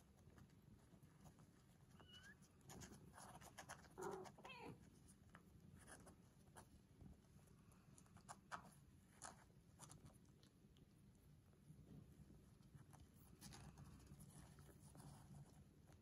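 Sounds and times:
kittens scrambling and rustling: 0:00.0 - 0:10.4
kitten squeak: 0:02.0 - 0:02.4, 0:04.0 - 0:04.8
kitten mewing: 0:03.9 - 0:04.8.

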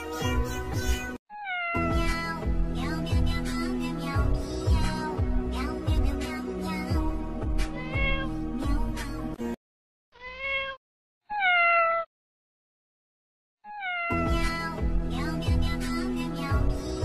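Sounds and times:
kitten meowing: 0:01.3 - 0:02.1, 0:07.7 - 0:08.3, 0:10.2 - 0:12.1, 0:13.7 - 0:14.5.

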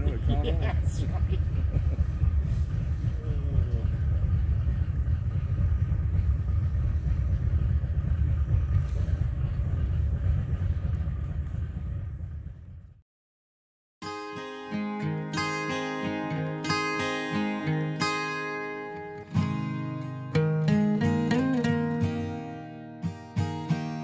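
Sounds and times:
boat rumbling: 0:00.0 - 0:13.0.

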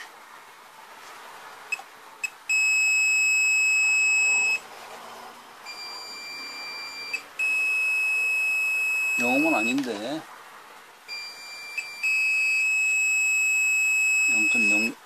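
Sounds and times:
multimeter beeping: 0:01.7 - 0:04.6, 0:05.6 - 0:10.0, 0:11.1 - 0:15.0.

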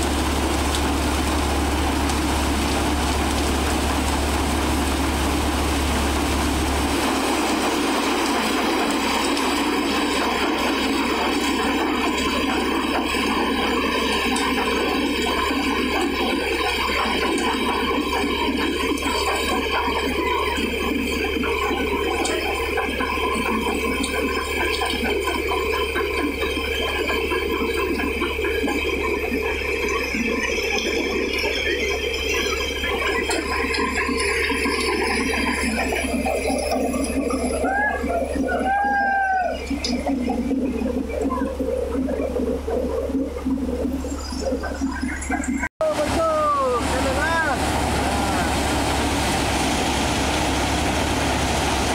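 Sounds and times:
thresher mechanical rattle: 0:00.0 - 0:38.2
tractor engine hum: 0:00.0 - 0:51.9
threshing machine din: 0:45.0 - 0:51.9.

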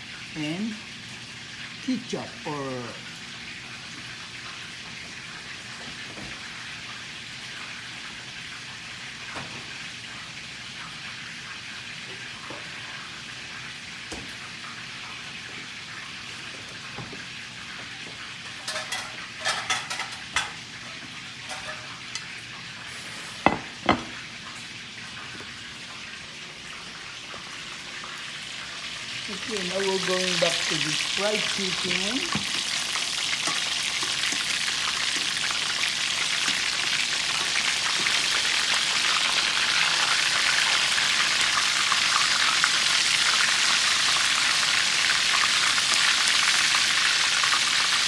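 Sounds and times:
chicken sizzling in oil: 0:00.0 - 0:48.0.

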